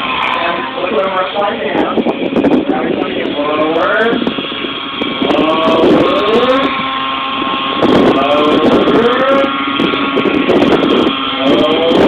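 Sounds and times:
model helicopter engine and rotor: 0:00.0 - 0:12.0.

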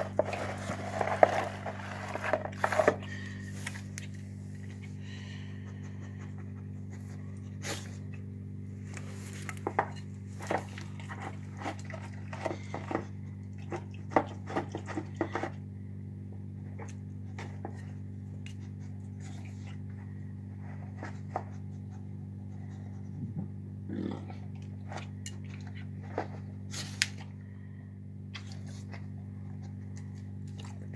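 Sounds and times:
dog eating wet food: 0:00.0 - 0:03.4, 0:09.7 - 0:15.7, 0:28.8 - 0:30.9
steady low hum: 0:00.0 - 0:30.9.

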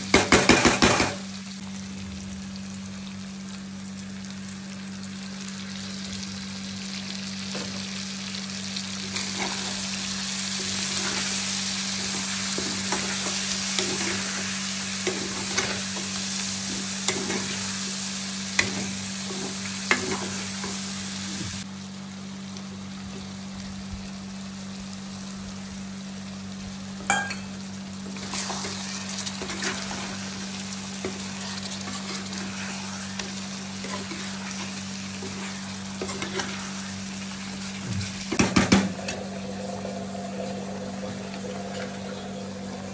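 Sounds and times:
chicken sizzling in oil: 0:00.0 - 0:42.9
steel spoon scraping a pan: 0:09.1 - 0:09.9, 0:10.6 - 0:16.1, 0:28.2 - 0:37.8.

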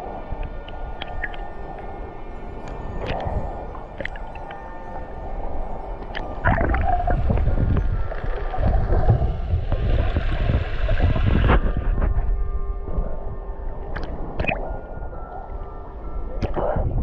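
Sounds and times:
muffled underwater rush: 0:06.1 - 0:15.2.

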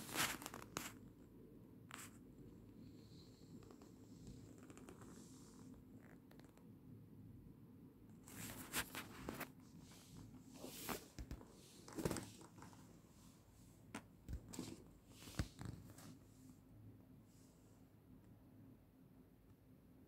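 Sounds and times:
sneakers handled knocks and rustles: 0:10.8 - 0:12.7.

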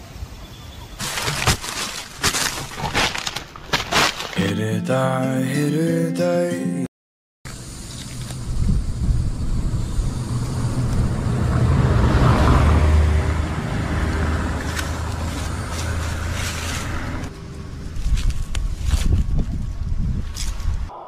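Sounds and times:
road traffic engine hum: 0:07.5 - 0:20.9
vehicle passing close: 0:09.0 - 0:18.6.

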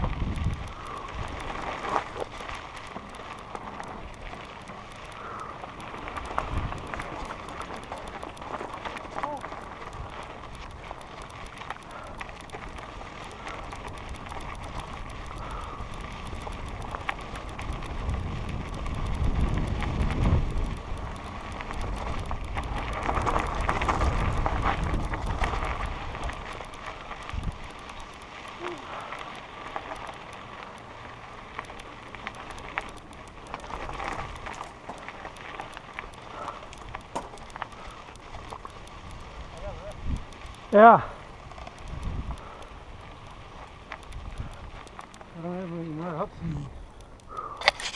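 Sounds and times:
wind buffeting microphone: 0:00.0 - 0:02.5, 0:03.3 - 0:28.6, 0:35.6 - 0:40.7, 0:41.3 - 0:45.2
bike rattling: 0:00.0 - 0:47.9
tyres crunching on gravel: 0:00.0 - 0:47.9.

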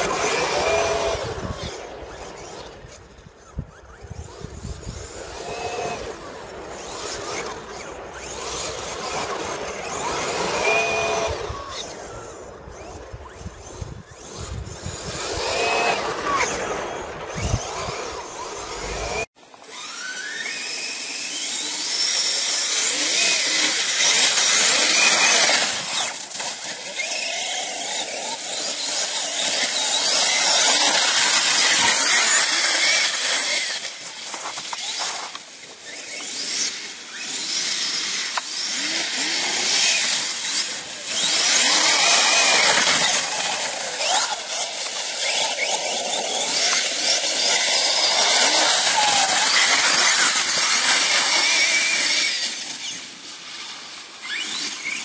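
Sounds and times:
electric buggy revving through slush: 0:00.0 - 0:55.0
rc car motor whining: 0:00.0 - 0:55.0
wind rumble on microphone: 0:00.9 - 0:06.7, 0:11.2 - 0:19.2.

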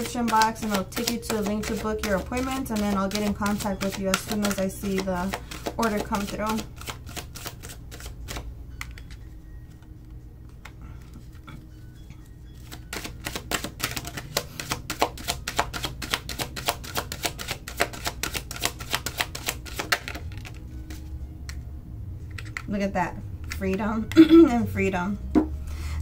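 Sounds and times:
card deck shuffled by hand: 0:00.0 - 0:09.2, 0:12.6 - 0:21.1.

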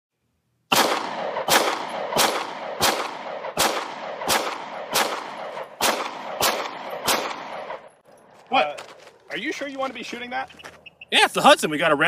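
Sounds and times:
pistol shots with echo: 0:00.7 - 0:08.0.

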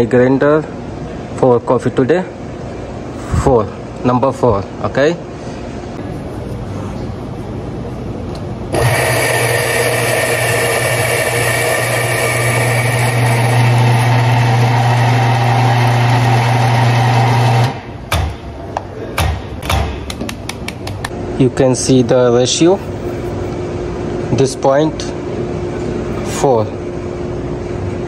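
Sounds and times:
coffee grinder grinding: 0:08.8 - 0:17.7.

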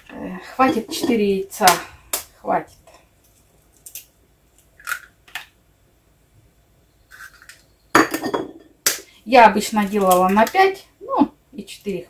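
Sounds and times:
eggshells cracking: 0:02.1 - 0:05.6, 0:07.1 - 0:07.7.

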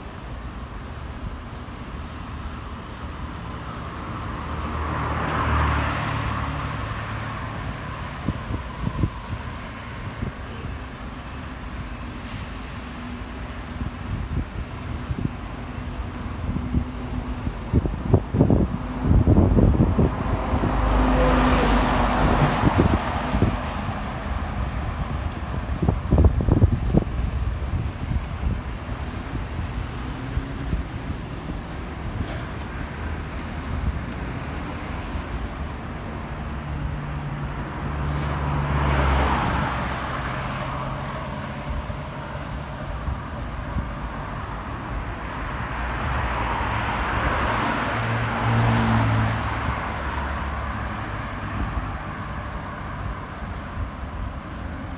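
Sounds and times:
cars passing: 0:00.0 - 0:54.9
low traffic rumble: 0:00.0 - 0:54.9.

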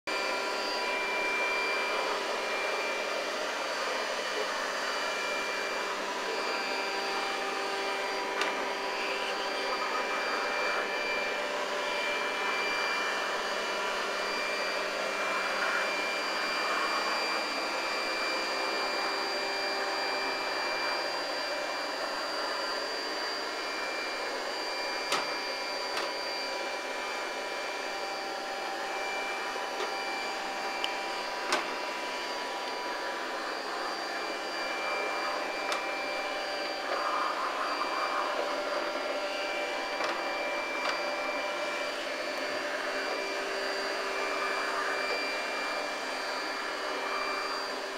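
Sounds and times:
high-pitched whines: 0:00.1 - 0:47.9
robot vacuum whirring: 0:00.1 - 0:47.9.

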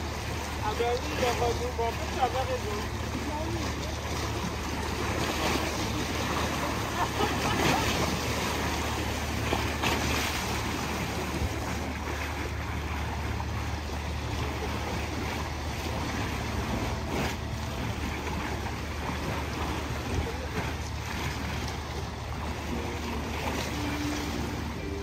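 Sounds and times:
steady low rumble: 0:00.0 - 0:25.0
water lapping against rocks: 0:00.0 - 0:25.0.

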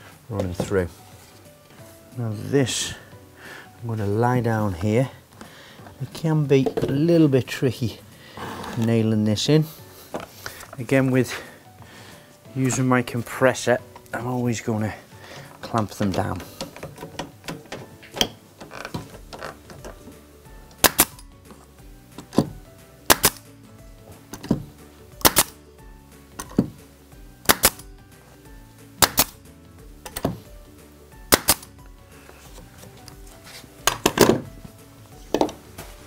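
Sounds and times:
nail gun shots: 0:20.8 - 0:21.2, 0:23.1 - 0:23.5, 0:25.2 - 0:25.6, 0:27.4 - 0:27.9, 0:29.0 - 0:29.4, 0:31.3 - 0:31.7.

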